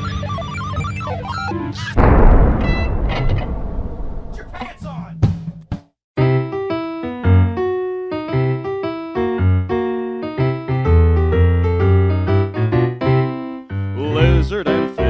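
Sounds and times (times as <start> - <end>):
electronic keyboard melody: 0.0 - 1.8, 6.2 - 14.0.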